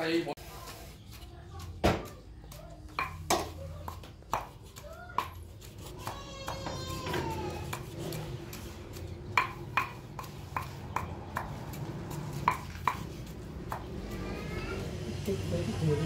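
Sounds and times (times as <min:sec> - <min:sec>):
knife chopping on wooden block: 0:03.0 - 0:08.1, 0:08.9 - 0:11.7.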